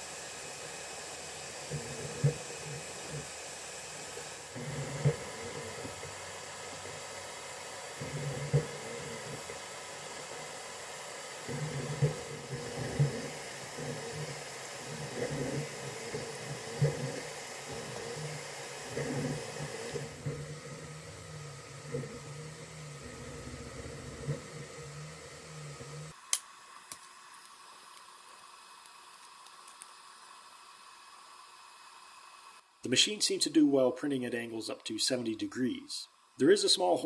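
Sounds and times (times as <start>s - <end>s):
stepper motors whirring: 0.0s - 26.2s
fan hiss: 0.0s - 37.0s.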